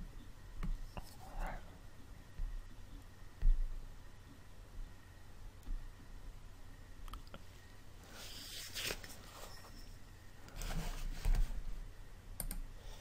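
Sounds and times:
rustling and scraping handling noises: 0:08.1 - 0:11.8.

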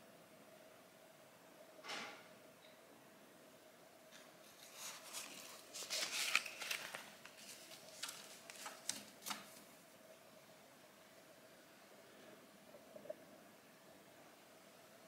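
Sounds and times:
paper rustling and crinkling: 0:04.4 - 0:09.8.

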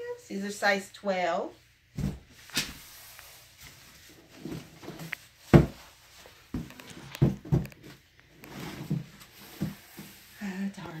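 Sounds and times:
thumps against cardboard box: 0:04.9 - 0:05.9.

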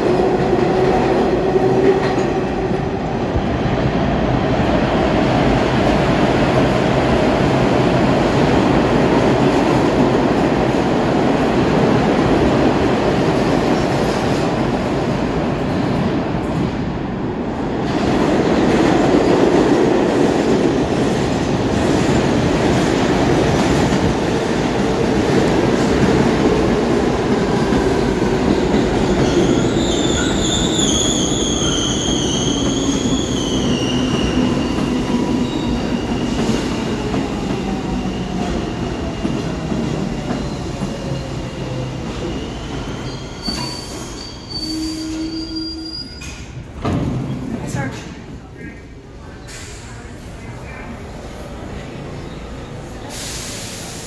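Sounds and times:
subway trains rumbling: 0:00.0 - 0:54.0
steel wheels squealing: 0:29.2 - 0:34.3, 0:42.4 - 0:46.4.

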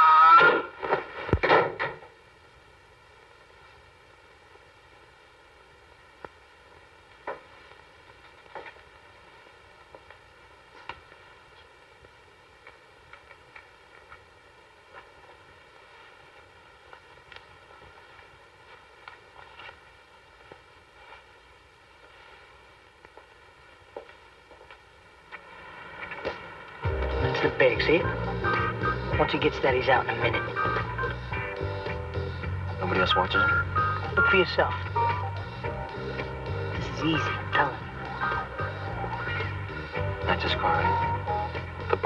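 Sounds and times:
man screaming: 0:00.0 - 0:00.7
low hiss: 0:00.0 - 0:42.0.

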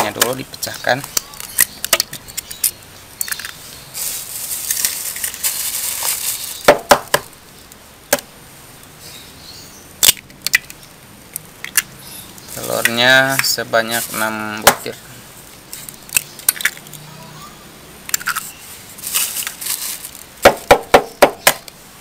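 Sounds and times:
soft hiss: 0:00.0 - 0:10.0
eggshells cracking on bowl: 0:10.0 - 0:11.9.

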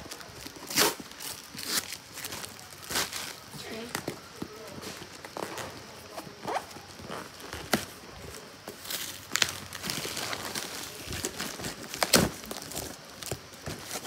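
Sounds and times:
packing tape ripping: 0:00.1 - 0:04.0, 0:08.7 - 0:14.0.

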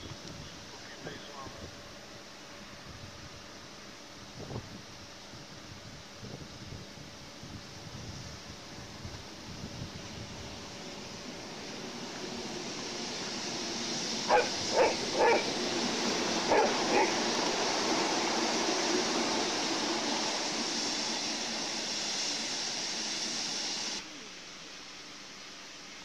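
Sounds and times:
dog barking: 0:14.3 - 0:15.5, 0:16.5 - 0:17.2.

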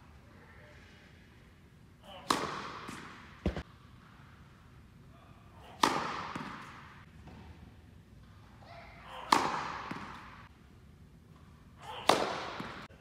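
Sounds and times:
tennis racket hitting ball: 0:02.2 - 0:03.7, 0:05.8 - 0:06.9, 0:09.3 - 0:10.4.

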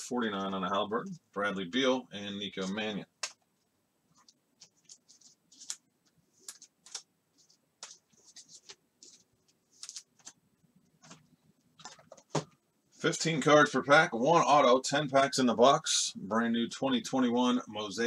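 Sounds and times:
faint clicks and scratches: 0:02.5 - 0:12.3.

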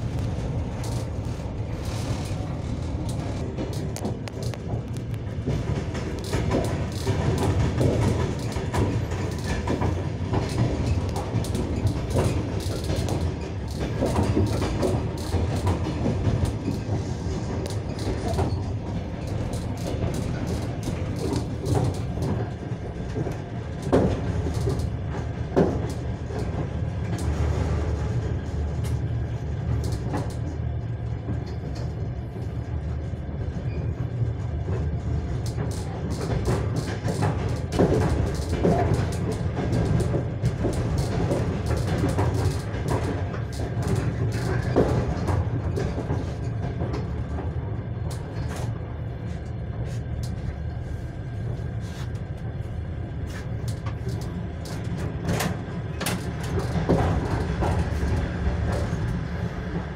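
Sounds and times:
train wheels rumbling on rails: 0:00.0 - 0:59.9
wheel clicks over rail joints: 0:00.2 - 0:29.1, 0:35.4 - 0:47.5, 0:53.3 - 0:59.3.

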